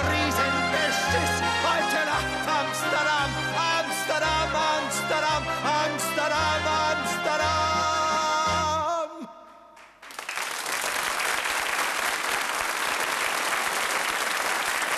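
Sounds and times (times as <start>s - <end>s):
audience applauding: 9.8s - 14.9s.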